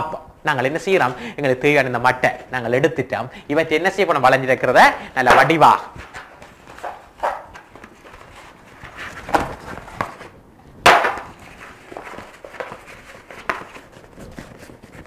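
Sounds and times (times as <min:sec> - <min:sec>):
card rustling: 0:05.2 - 0:15.0
card crackling: 0:05.3 - 0:10.3, 0:10.9 - 0:15.0.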